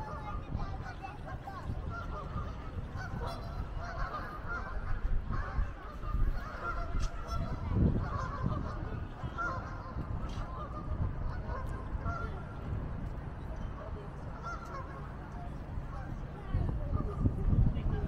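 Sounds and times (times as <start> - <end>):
geese honking: 0.0 - 12.5, 14.4 - 15.1
steady low rumble: 0.0 - 18.0.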